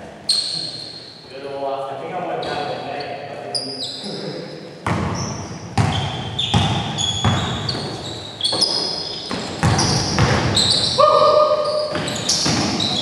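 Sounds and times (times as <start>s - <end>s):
sneakers squeaking on court: 0.3s - 1.1s, 2.4s - 4.2s, 4.8s - 13.0s
basketball bouncing on hardwood: 4.8s - 11.0s, 11.9s - 13.0s.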